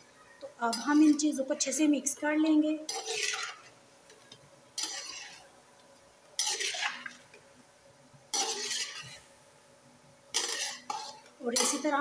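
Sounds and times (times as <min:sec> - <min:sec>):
metal spoon scraping a pan: 0:00.6 - 0:02.2, 0:02.8 - 0:03.8, 0:04.8 - 0:05.5, 0:06.4 - 0:07.2, 0:08.3 - 0:09.3, 0:10.3 - 0:12.0.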